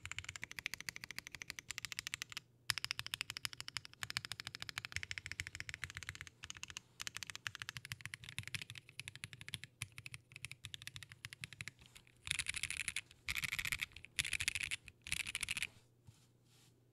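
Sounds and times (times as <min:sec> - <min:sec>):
mechanical keyboard typing: 0:00.0 - 0:15.7.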